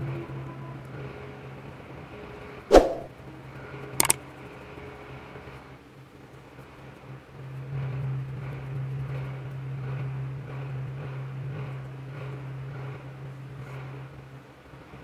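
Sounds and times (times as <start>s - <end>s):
sharp knock: 2.7s - 3.1s.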